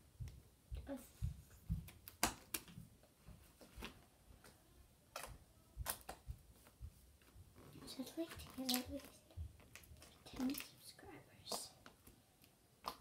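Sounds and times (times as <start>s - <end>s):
soft low thumps: 0.0s - 1.9s.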